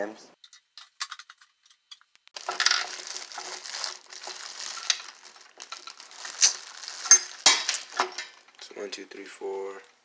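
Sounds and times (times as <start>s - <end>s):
candy dropping into bag: 2.4s - 8.4s
plastic bag crinkling: 2.4s - 8.6s.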